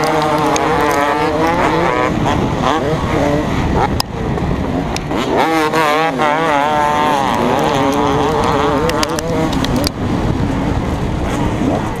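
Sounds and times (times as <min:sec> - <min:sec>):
motocross engine revving: 0:00.0 - 0:04.0, 0:05.0 - 0:12.0.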